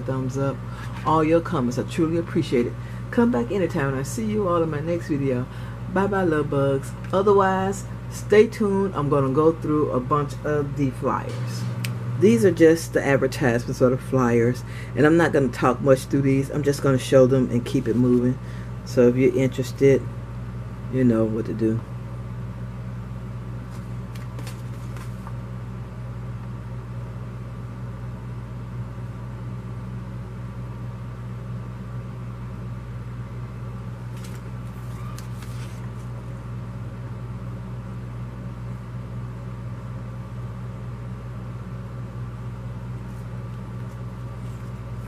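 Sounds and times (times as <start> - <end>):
low background hum: 0.0 - 45.0
paper flyers rustling: 23.6 - 25.4, 34.1 - 36.2, 43.0 - 45.0.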